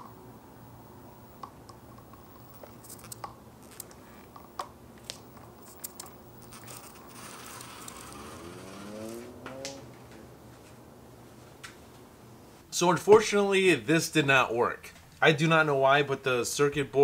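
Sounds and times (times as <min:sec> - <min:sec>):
skateboard rolling on concrete: 0:01.4 - 0:11.7
small clicks and crunches: 0:02.0 - 0:08.8.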